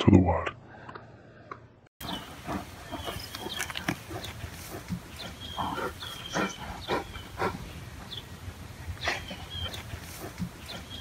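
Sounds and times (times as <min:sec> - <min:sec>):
bears grunting: 0:02.0 - 0:08.2
birds chirping: 0:02.0 - 0:11.0.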